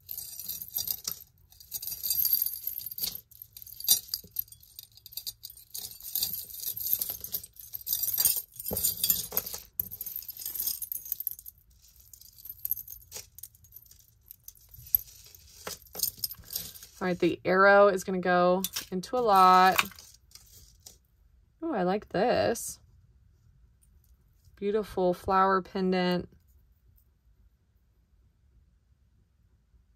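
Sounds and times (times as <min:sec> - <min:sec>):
metal chains jingling and clinking: 0:00.0 - 0:17.4, 0:18.6 - 0:20.7.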